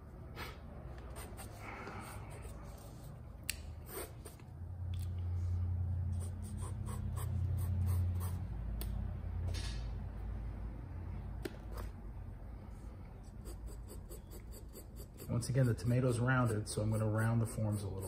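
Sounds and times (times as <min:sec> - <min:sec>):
low steady hum: 0:00.0 - 0:18.0
pencil scratching on paper: 0:01.1 - 0:03.2, 0:06.1 - 0:08.4, 0:13.3 - 0:18.0.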